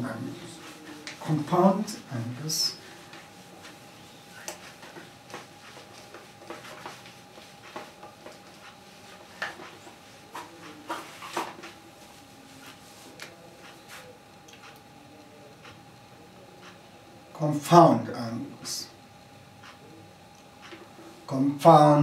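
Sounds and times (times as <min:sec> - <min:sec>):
faint steady hum: 0:00.0 - 0:22.0
whiteboard being wiped: 0:02.6 - 0:13.2
marker writing on board: 0:04.4 - 0:11.8.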